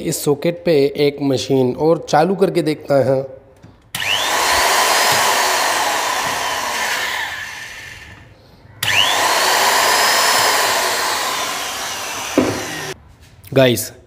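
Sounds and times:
electric drill whining: 3.9 - 8.2, 8.8 - 13.0.

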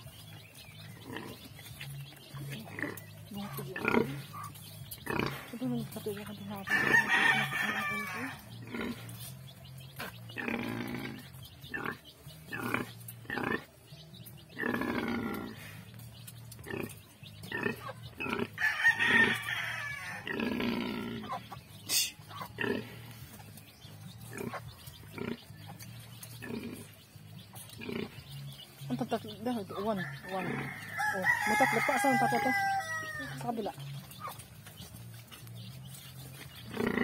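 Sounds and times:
sow grunting: 0.9 - 6.0, 14.5 - 15.9, 20.1 - 23.2, 36.6 - 37.0.

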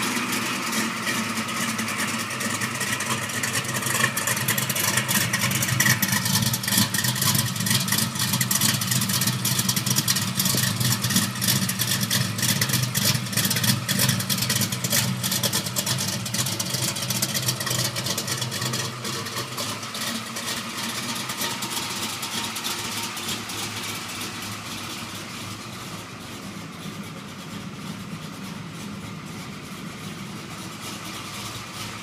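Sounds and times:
car engine idling: 0.0 - 32.0.

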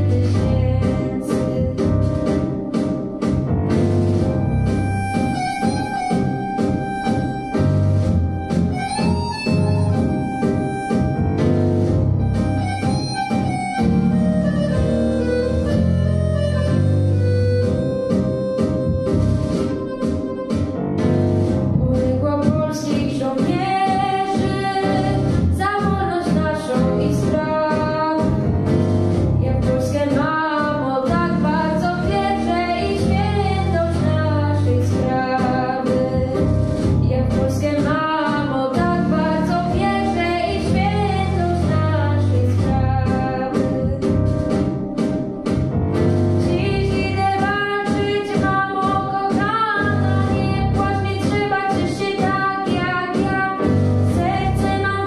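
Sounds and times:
girl singing into microphone: 0.0 - 2.1, 21.8 - 28.5, 29.4 - 44.0, 46.4 - 55.0
instrumental backing track: 0.0 - 55.0.

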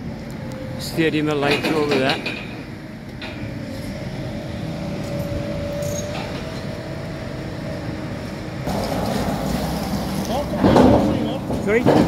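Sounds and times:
low engine rumble: 0.0 - 12.0.

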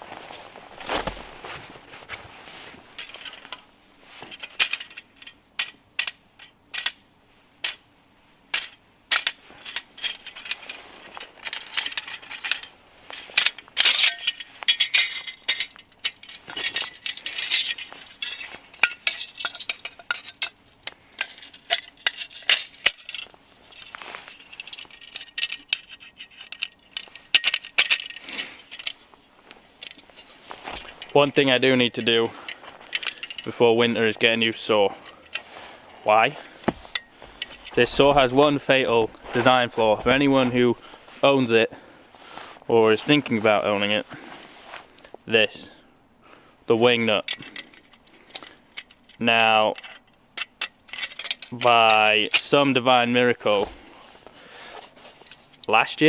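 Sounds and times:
metal saw parts clinking: 4.2 - 7.0, 8.5 - 29.0, 29.8 - 40.8, 47.1 - 53.9.

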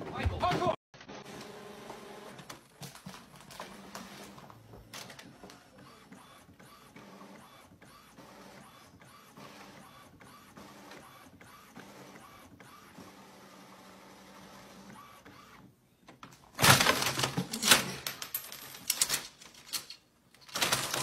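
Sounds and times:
printer carriage whirring: 1.0 - 15.8.

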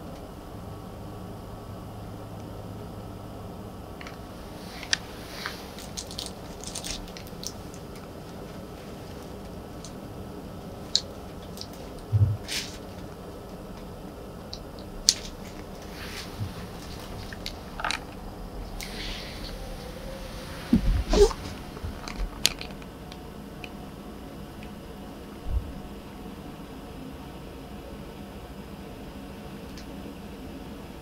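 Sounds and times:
room hiss: 0.0 - 31.0
soft low thump: 12.1 - 12.5.

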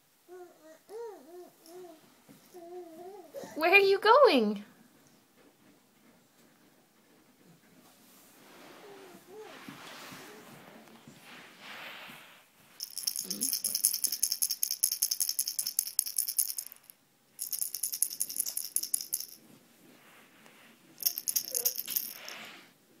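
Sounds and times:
toy rattle shaken: 12.8 - 19.4, 21.0 - 22.5.

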